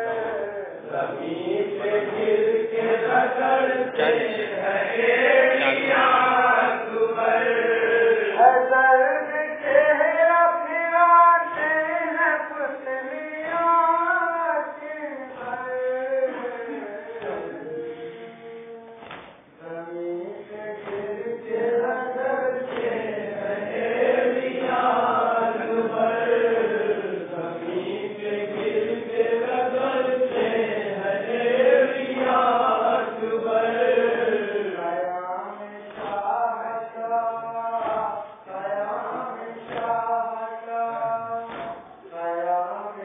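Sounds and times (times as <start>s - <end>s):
men chanting a lament: 0.0s - 43.0s
chest-beating slaps: 19.0s - 19.5s, 20.8s - 21.2s, 22.7s - 23.1s, 28.5s - 28.9s, 35.9s - 36.4s, 37.8s - 38.4s, 39.6s - 40.2s, 41.4s - 42.0s.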